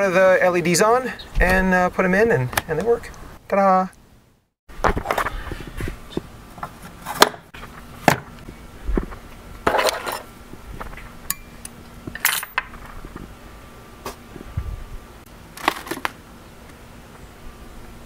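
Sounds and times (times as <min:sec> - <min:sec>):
metal hand tools clinking: 0:11.3 - 0:12.6.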